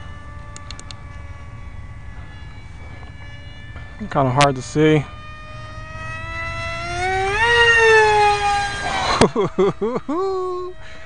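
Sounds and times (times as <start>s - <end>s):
electric motor whining: 0.0s - 11.0s
sharp tick: 0.5s - 1.0s.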